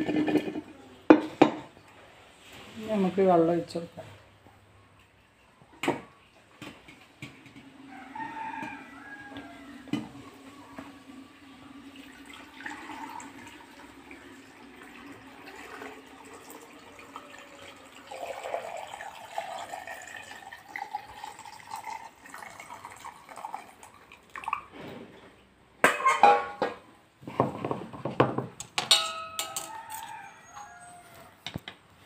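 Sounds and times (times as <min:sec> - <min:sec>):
brine trickling into a jar: 0:11.9 - 0:24.8.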